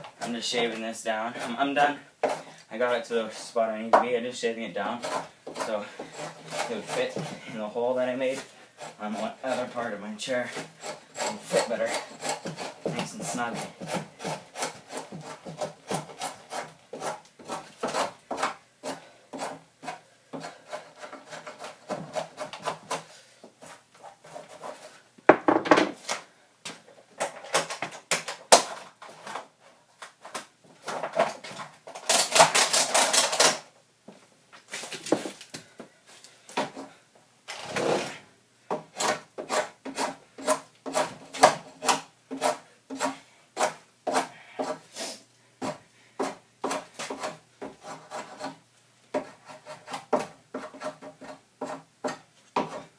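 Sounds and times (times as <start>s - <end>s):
tool scraping wood: 0.0s - 25.0s, 36.5s - 52.9s.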